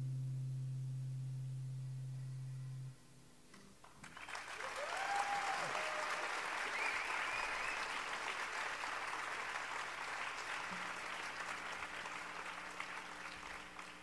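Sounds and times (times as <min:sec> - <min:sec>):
audience applauding: 0:03.8 - 0:14.0.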